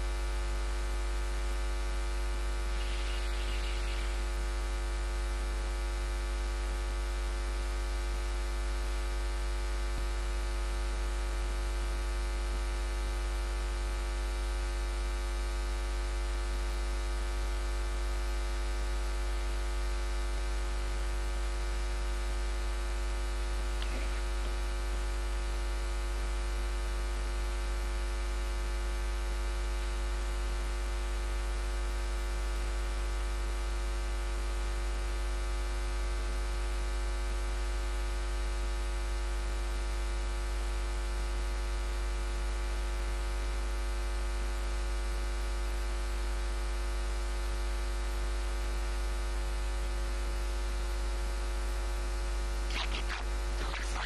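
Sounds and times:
electrical mains hum: 2.5 - 5.3, 23.8 - 25.3, 52.7 - 54.0.

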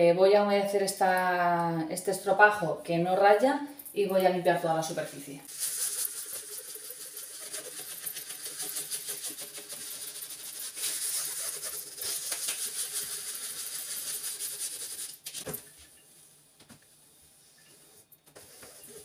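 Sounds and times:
sponge scrubbing metal: 5.5 - 15.2.

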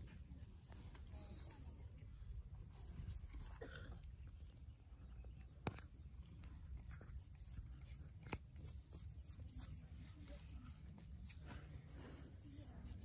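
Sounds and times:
razor scraping stubble: 0.8 - 4.7, 5.6 - 13.0.

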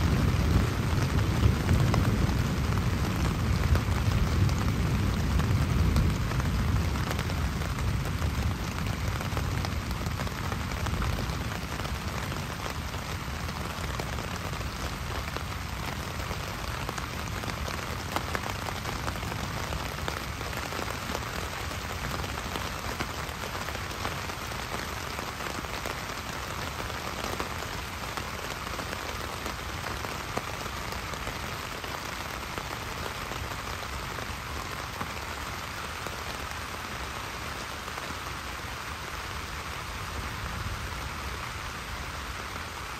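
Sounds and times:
low rumble of thunder: 0.0 - 14.3
heavy rain pattering on tarp: 0.0 - 42.9.

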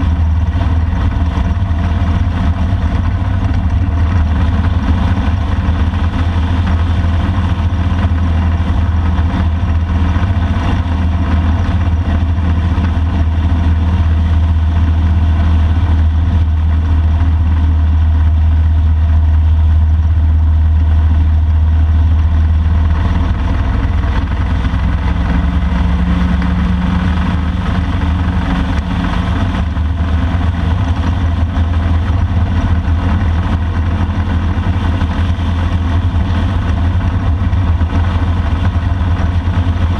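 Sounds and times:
motorcycle engine running: 0.0 - 39.9
wind and road noise: 0.0 - 39.9.

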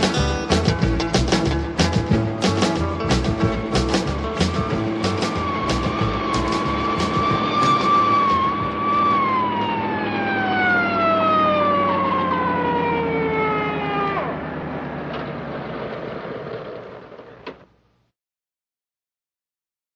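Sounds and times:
low engine hum: 0.0 - 17.3
siren winding down: 4.1 - 15.1.

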